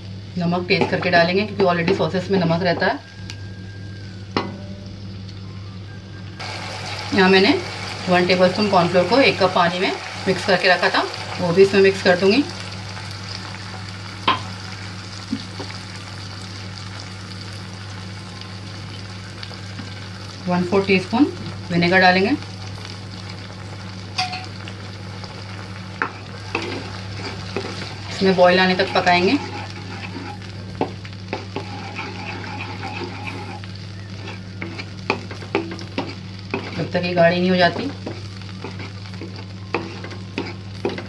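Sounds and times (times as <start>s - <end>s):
steady low hum: 0.0s - 41.0s
sauce bubbling and sizzling: 6.4s - 41.0s
spatula scraping a pan: 26.0s - 28.0s, 28.7s - 37.0s, 37.8s - 41.0s.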